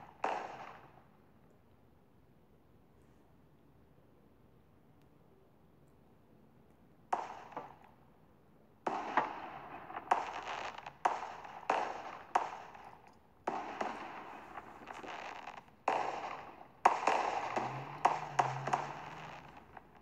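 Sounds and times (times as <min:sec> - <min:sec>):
fireworks bangs: 0:00.0 - 0:01.0, 0:07.2 - 0:07.8, 0:08.9 - 0:20.0
fireworks crackle: 0:00.0 - 0:01.0, 0:07.2 - 0:07.9, 0:08.9 - 0:20.0.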